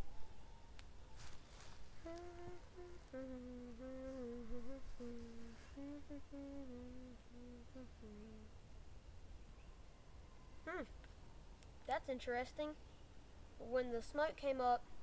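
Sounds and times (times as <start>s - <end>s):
person humming softly: 1.9s - 8.6s.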